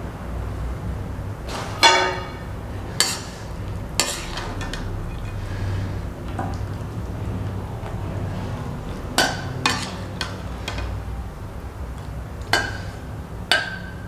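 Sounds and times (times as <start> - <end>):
steady low hum: 0.0 - 14.0
metal spoon clinking on pan: 9.2 - 10.9.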